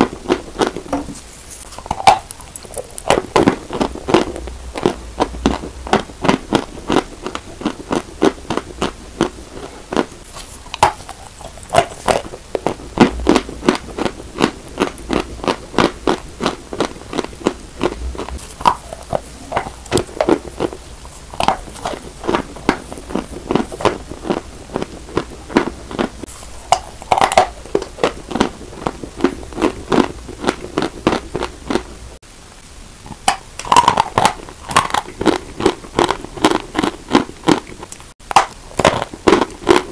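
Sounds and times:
chalk being crunched and chewed: 0.3 - 31.9.

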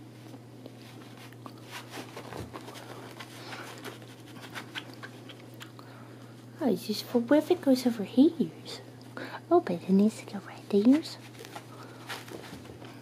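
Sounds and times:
steady low hum: 0.0 - 13.0
scratching on carpet: 0.8 - 5.1.

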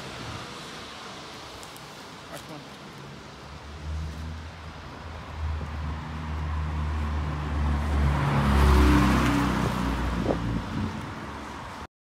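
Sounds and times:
tyres swishing on wet road: 0.0 - 11.9
diesel bus accelerating past: 3.4 - 11.9.

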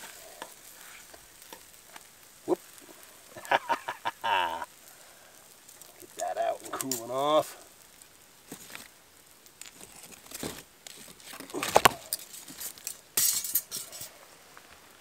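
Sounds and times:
grill grate scraping on rocks: 0.0 - 4.7, 5.4 - 14.8
metal grill grate clinking: 6.1 - 7.4, 9.6 - 14.2.

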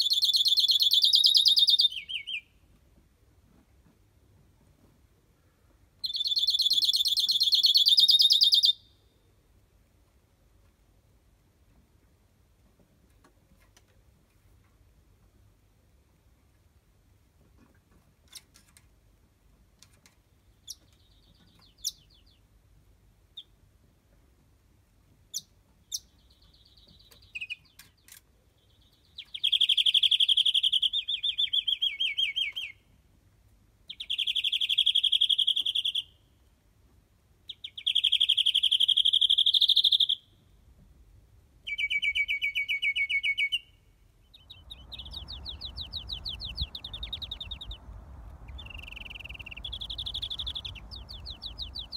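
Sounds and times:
finch singing trills: 0.0 - 2.5, 28.7 - 32.8, 37.5 - 40.2, 41.7 - 51.9
wind rumbling on microphone: 44.4 - 51.9.

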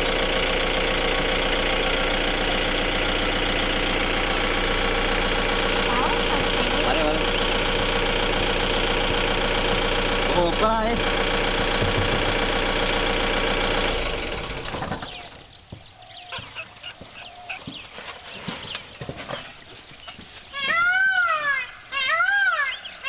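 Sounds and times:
vehicle engine idling: 0.0 - 23.0
loud call rising and falling: 20.6 - 22.8.

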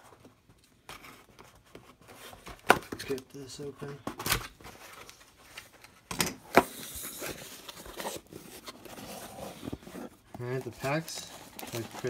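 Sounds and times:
cardboard tearing and rustling: 6.7 - 12.0.

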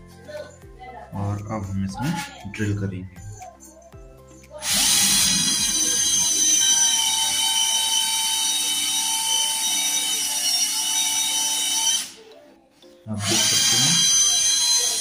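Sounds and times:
drill drilling into concrete: 4.6 - 12.2, 13.2 - 15.0.

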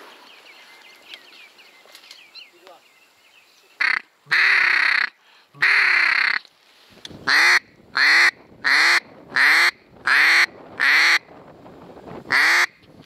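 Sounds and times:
duck quacking: 3.8 - 6.4, 7.3 - 11.2, 12.3 - 12.8.

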